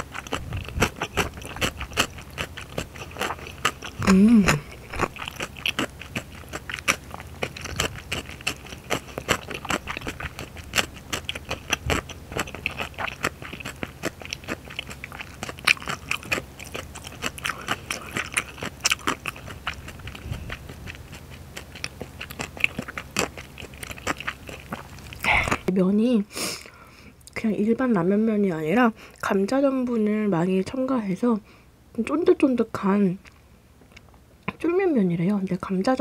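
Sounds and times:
chewing with mouth clicks: 0:00.0 - 0:25.7, 0:33.2 - 0:34.6.

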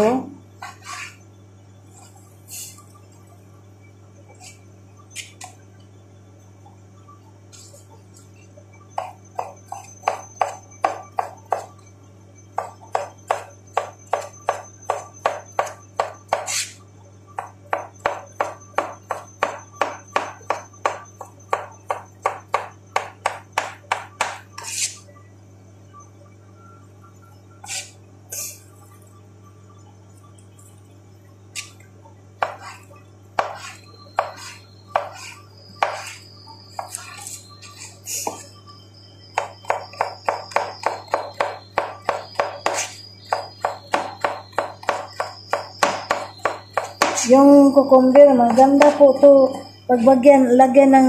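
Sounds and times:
steady low hum: 0:00.0 - 0:51.0
knife chopping on cutting board: 0:12.6 - 0:16.7, 0:17.4 - 0:24.7, 0:32.4 - 0:32.8, 0:33.4 - 0:36.2, 0:39.4 - 0:47.3.

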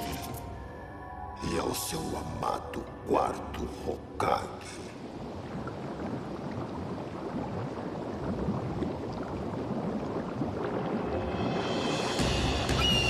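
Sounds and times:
bubbling gurgling pops: 0:05.3 - 0:11.6.

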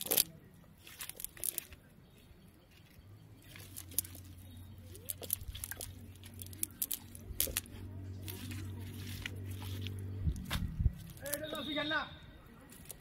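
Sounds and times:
fishing net rustling and crackling: 0:00.0 - 0:01.9, 0:02.8 - 0:11.5
low steady hum: 0:00.0 - 0:11.4
sharp crunches: 0:03.4 - 0:11.6.

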